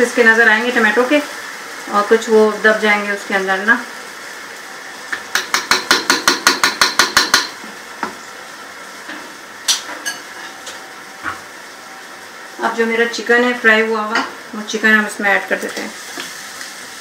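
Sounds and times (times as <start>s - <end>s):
hand blender knocking on pan rim: 5.2s - 7.6s.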